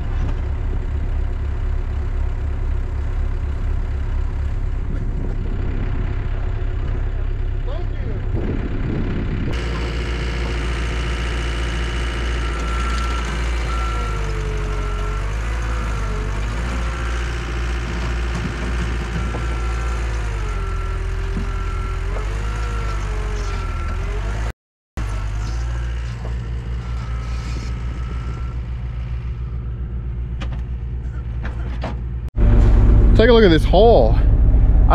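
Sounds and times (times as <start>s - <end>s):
diesel engine under load: 0.0s - 34.9s
rising and falling whine: 32.4s - 34.9s.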